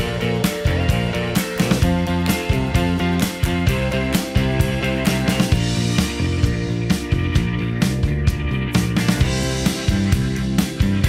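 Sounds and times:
background music with drum beat: 0:00.0 - 0:11.0.

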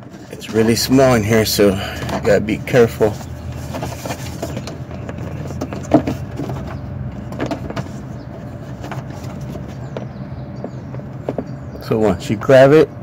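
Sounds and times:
car engine idling: 0:00.0 - 0:12.4
plastic rustles and clicks: 0:03.0 - 0:08.0.

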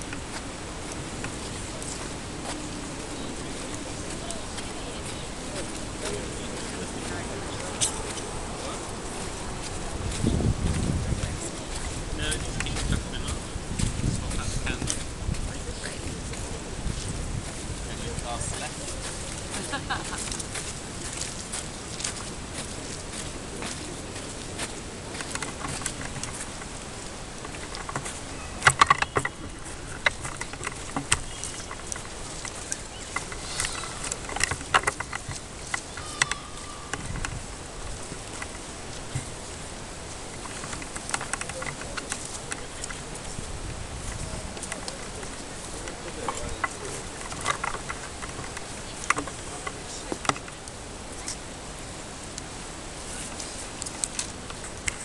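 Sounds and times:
steady hiss: 0:00.0 - 0:55.0.

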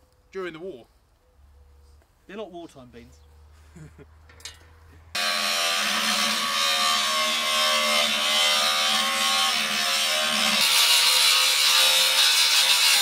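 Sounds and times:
angle grinder cutting steel: 0:05.2 - 0:13.0.

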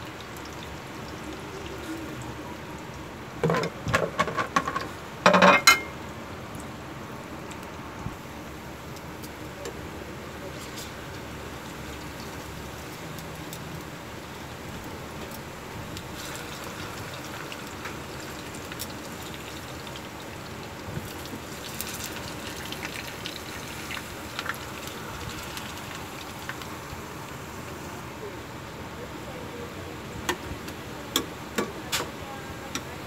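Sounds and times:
food sizzling in hot oil: 0:00.0 - 0:06.1, 0:08.1 - 0:28.1.

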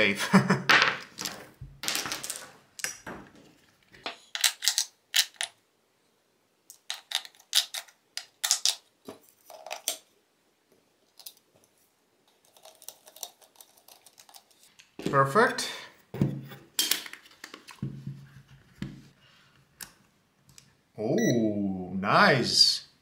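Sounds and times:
batteries clicking and rattling: 0:04.1 - 0:05.6, 0:06.7 - 0:10.1, 0:12.3 - 0:14.8.

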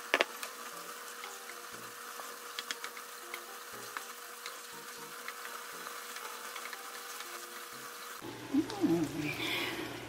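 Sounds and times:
simmering food hiss: 0:00.0 - 0:10.0
wavering voice-like sound: 0:08.5 - 0:09.7.

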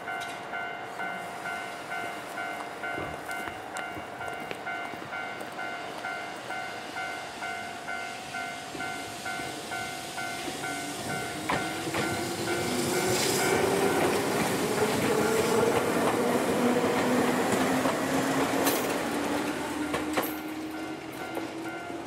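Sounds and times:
crossing warning bell dinging: 0:00.0 - 0:22.0
wheels clicking on rails: 0:10.2 - 0:22.0.

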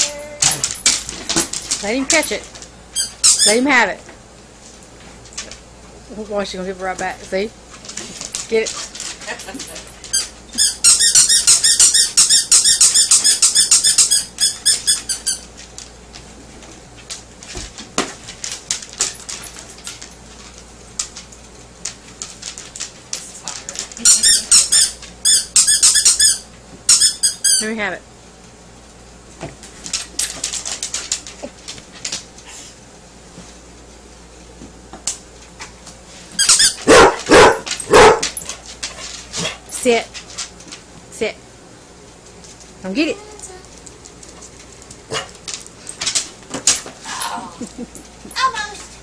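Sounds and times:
rubber toy squeaking: 0:03.0 - 0:03.6, 0:36.4 - 0:36.8.

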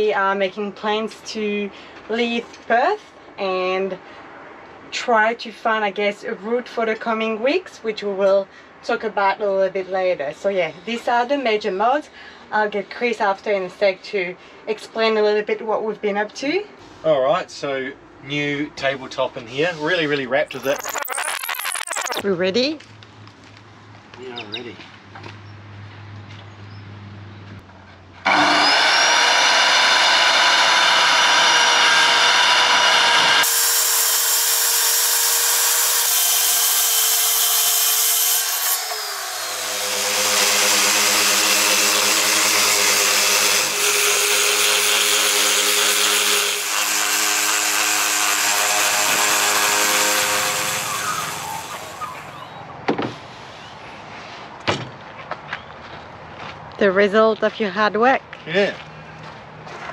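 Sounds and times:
circular saw cutting wood: 0:28.2 - 0:52.5
orbital sander running: 0:28.3 - 0:52.4.

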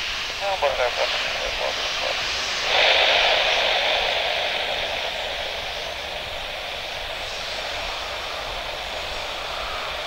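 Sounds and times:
rushing radio static: 0:00.0 - 0:06.6.

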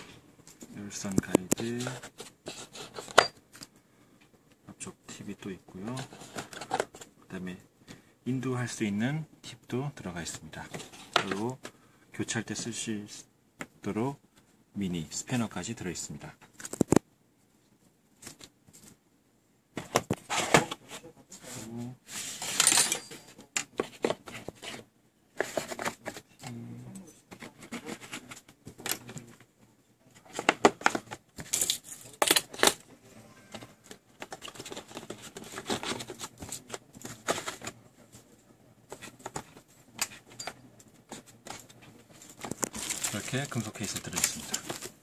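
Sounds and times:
metal parts clinking in tin: 0:22.5 - 0:23.3.

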